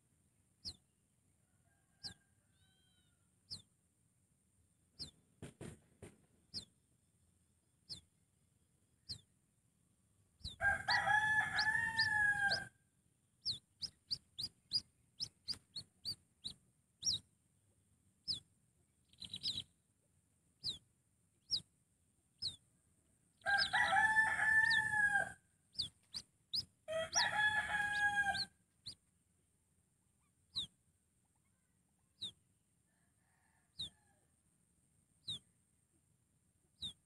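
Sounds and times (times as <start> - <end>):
high falling bird chirps: 5.0 - 5.2, 6.5 - 6.8, 7.9 - 8.1, 9.0 - 9.3, 10.4 - 12.7, 13.4 - 17.3, 18.2 - 19.7, 20.6 - 21.7, 22.4 - 22.6, 23.4 - 29.0, 30.5 - 30.8, 32.1 - 32.4, 36.8 - 37.0.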